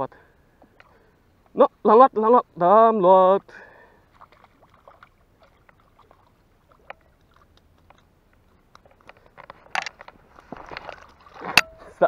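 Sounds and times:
faint water splashes: 0.0 - 2.0, 2.6 - 12.0
small ticks: 4.2 - 11.0.

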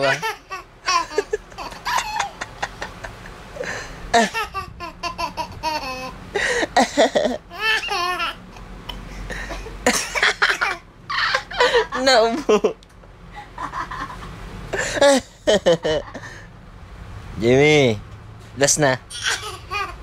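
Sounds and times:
toddler laughing: 0.0 - 12.8, 19.1 - 20.0.

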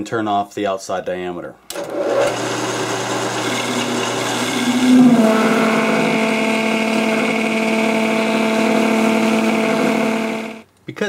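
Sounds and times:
metal lathe running: 1.8 - 10.6.

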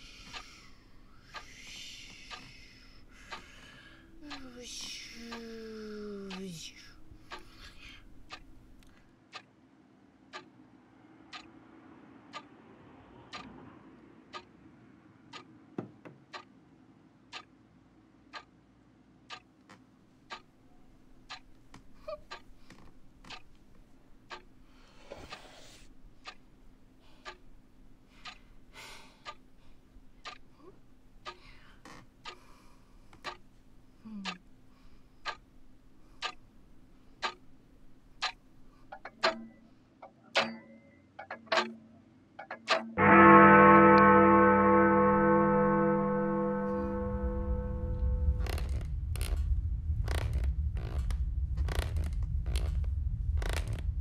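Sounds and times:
pendulum clock ticking: 0.0 - 9.6, 10.2 - 10.6, 11.2 - 11.7, 12.3 - 13.6, 14.3 - 15.6, 16.3 - 16.6, 17.3 - 17.6, 18.3 - 18.6, 19.2 - 19.6, 20.2 - 41.8, 42.4 - 54.0
faint low drone: 43.0 - 54.0.

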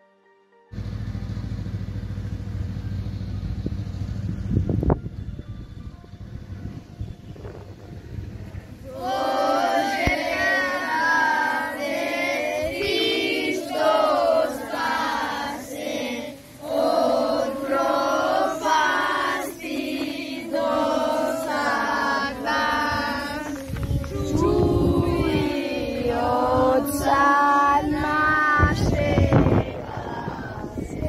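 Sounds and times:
boys singing in unison: 8.8 - 31.0.

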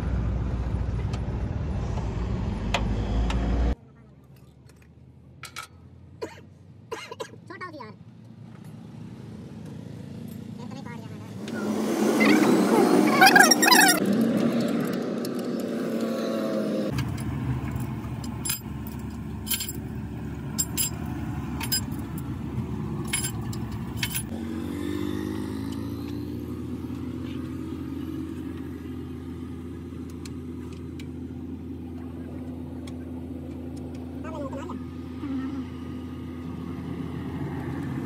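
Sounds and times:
metal engine parts clinking: 4.6 - 5.8, 16.9 - 22.4, 23.0 - 24.3.

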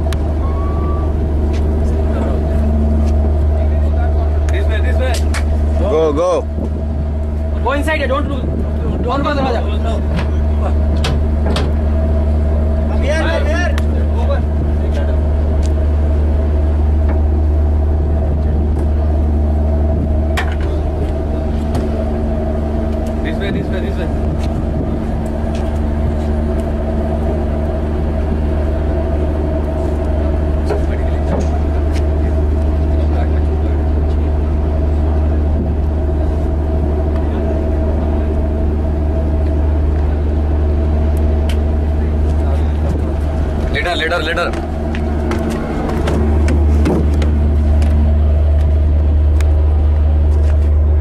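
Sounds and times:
ship engine drone: 0.0 - 51.0
faint high tone: 0.4 - 1.2.

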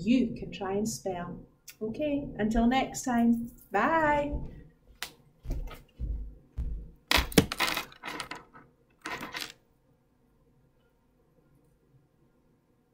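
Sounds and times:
knocks thuds and clatter: 6.6 - 8.5.

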